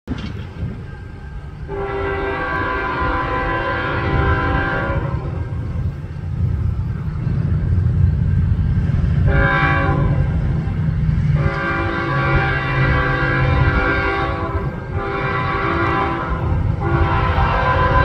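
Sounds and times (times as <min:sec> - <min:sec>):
locomotive air horn: 0:01.6 - 0:05.6, 0:09.2 - 0:10.4, 0:11.3 - 0:18.0.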